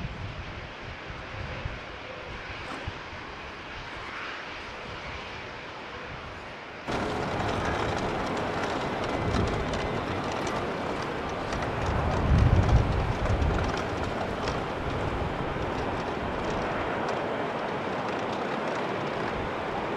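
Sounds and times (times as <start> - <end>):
jet engine of taxiing airliner: 0.0 - 19.9.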